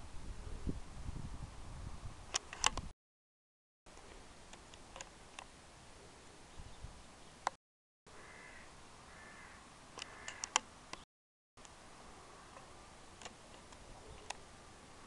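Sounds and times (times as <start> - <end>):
steady low hiss: 3.9 - 7.5, 8.1 - 11.0, 11.6 - 15.0.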